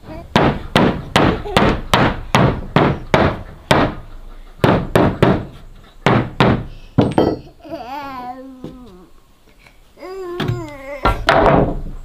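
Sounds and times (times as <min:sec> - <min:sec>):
hammer striking wooden board: 0:00.3 - 0:04.0, 0:04.6 - 0:07.4.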